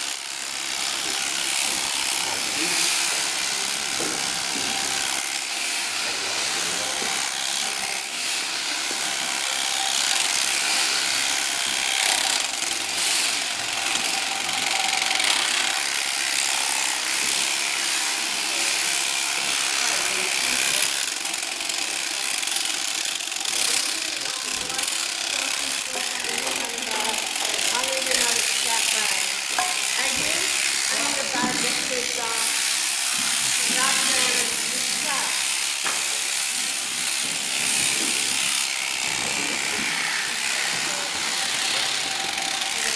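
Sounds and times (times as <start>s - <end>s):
electric shears clipping fleece: 0.0s - 42.9s.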